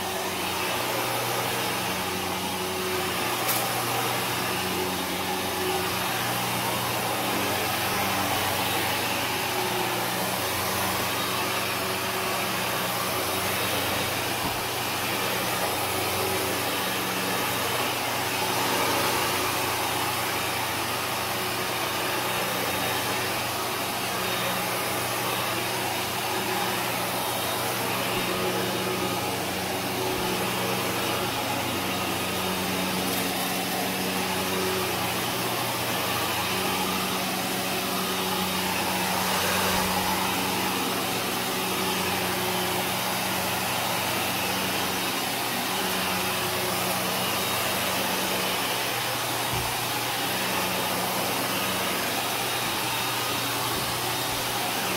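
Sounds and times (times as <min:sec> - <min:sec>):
vacuum cleaner running: 0:00.0 - 0:54.9.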